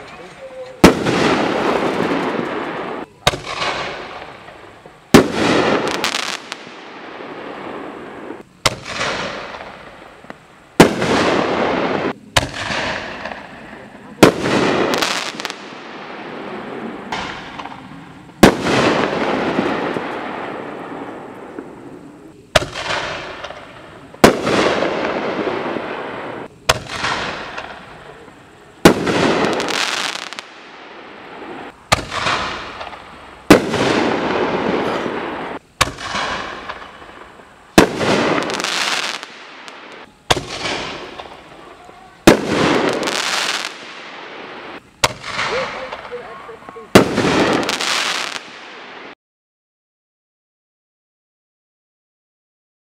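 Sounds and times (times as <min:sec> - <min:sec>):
fireworks bangs with echo: 0:00.0 - 0:21.9, 0:22.5 - 0:49.2.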